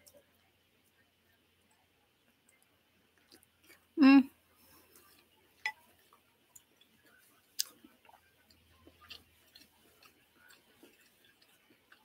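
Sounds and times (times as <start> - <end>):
person chewing food: 0.0 - 12.0
mouth clicks and smacks: 7.6 - 12.0.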